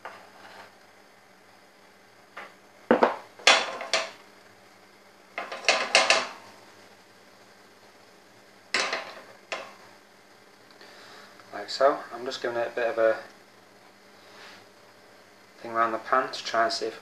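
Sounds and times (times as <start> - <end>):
frying pan clattering on hob: 2.9 - 4.2, 5.4 - 6.4, 8.8 - 9.8.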